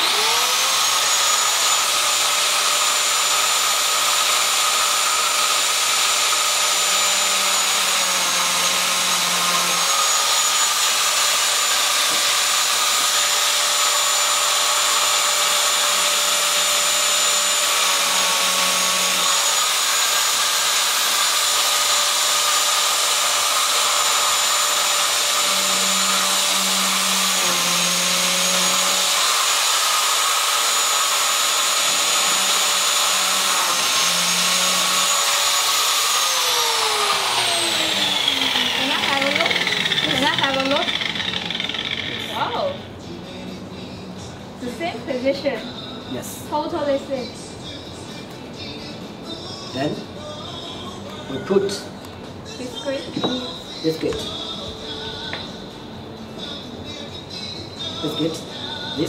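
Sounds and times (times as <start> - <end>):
electric motor whining: 0.0 - 42.8.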